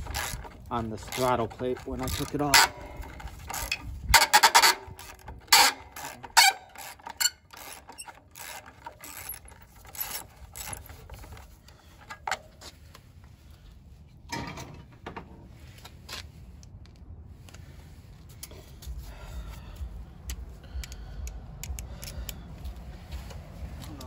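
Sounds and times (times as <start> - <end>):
socket ratchet clicking: 20.2 - 22.4.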